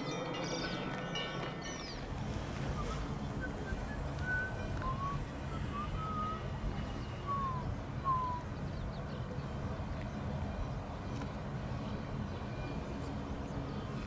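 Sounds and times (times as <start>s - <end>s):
low outdoor rumble: 0.0s - 14.0s
short whistled calls: 2.6s - 8.5s.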